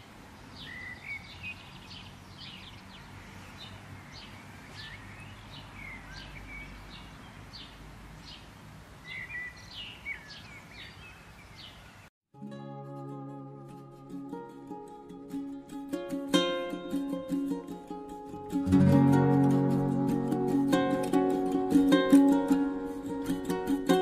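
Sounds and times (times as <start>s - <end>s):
small birds chirping: 0.0s - 12.1s.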